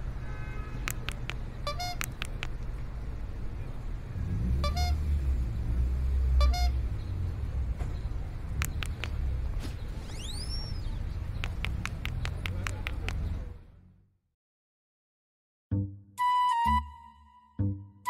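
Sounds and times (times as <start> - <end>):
traffic rumble: 0.0 - 14.3
sharp clicks: 0.8 - 2.7, 8.5 - 9.2, 11.3 - 13.4
vehicle passing: 0.9 - 14.1
car horn toots: 1.7 - 2.2, 4.6 - 5.1, 6.4 - 6.8.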